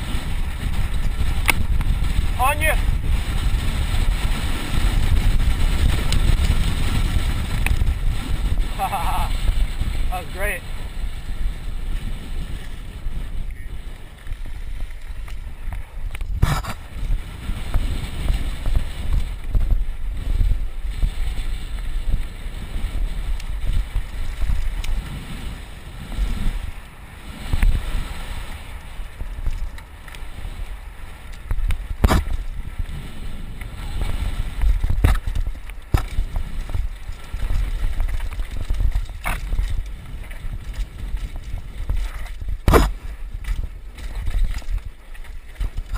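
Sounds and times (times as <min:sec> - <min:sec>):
bike rumbling on dirt trail: 0:00.0 - 0:45.9
wind buffeting camera: 0:00.0 - 0:45.9
bike knocking over bumps: 0:31.4 - 0:32.8, 0:34.5 - 0:45.9.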